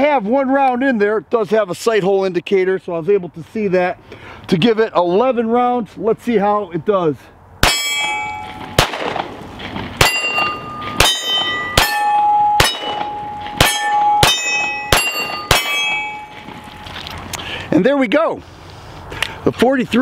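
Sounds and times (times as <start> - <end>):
steel targets clanging: 7.6 - 9.2, 10.0 - 17.0
pistol shots: 7.6 - 9.4, 10.0 - 16.6.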